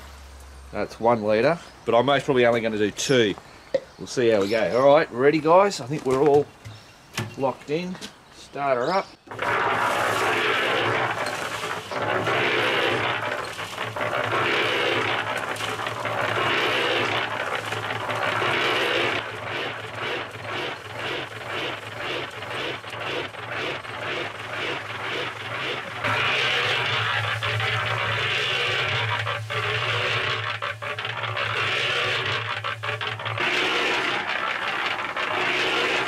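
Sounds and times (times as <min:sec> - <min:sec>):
concrete mixer motor hum: 0:09.2 - 0:36.0
concrete tumbling in drum: 0:09.2 - 0:36.0.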